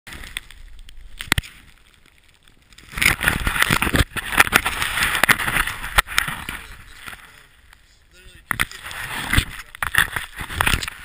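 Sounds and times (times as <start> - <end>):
snowboard rushing through snow: 8.7 - 11.0.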